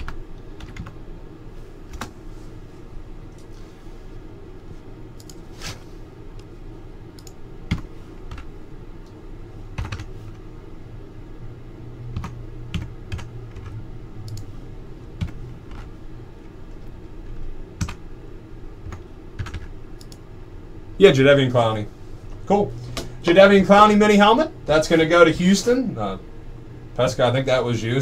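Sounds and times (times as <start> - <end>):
computer keyboard keystrokes: 0.0 - 1.0, 9.8 - 10.1, 12.1 - 14.5, 18.8 - 20.2
steady low hum: 0.0 - 28.0.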